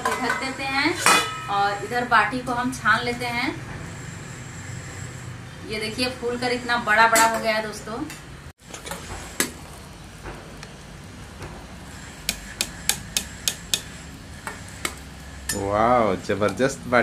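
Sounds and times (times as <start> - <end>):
ladle clinking on metal pot: 0.0 - 1.5.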